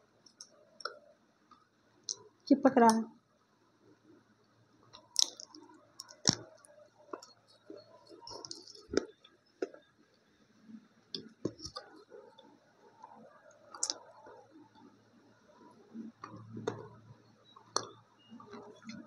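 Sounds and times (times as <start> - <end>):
clay crunching between teeth: 4.9 - 6.5, 13.7 - 14.0
wet chewing: 5.2 - 6.5, 8.1 - 9.8.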